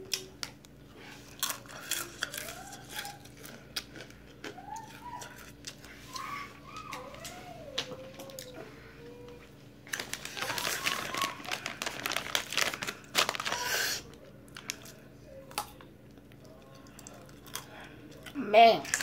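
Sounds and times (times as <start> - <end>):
chip bag crinkling: 9.9 - 15.0.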